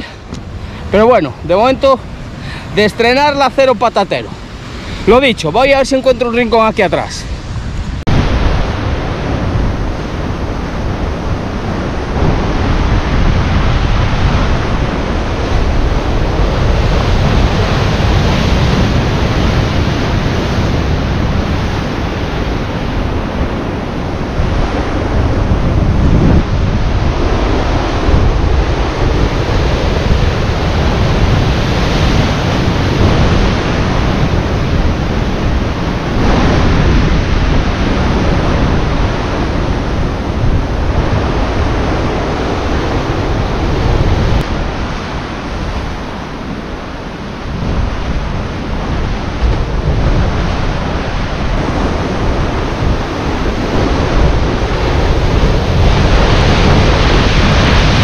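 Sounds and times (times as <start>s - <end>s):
sea washing against rocks: 0.0s - 58.0s
wind rumbling on microphone: 0.0s - 58.0s.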